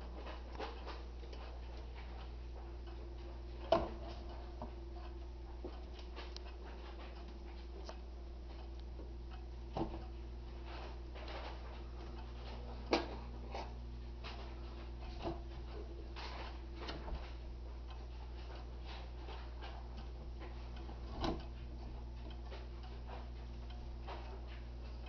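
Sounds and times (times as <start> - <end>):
low hum: 0.0 - 25.0
pendulum clock ticking: 0.0 - 25.0.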